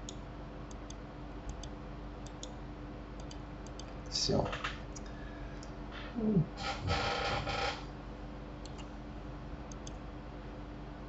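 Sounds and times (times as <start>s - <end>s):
steady low hum: 0.0s - 11.0s
faint clicks: 9.7s - 10.0s.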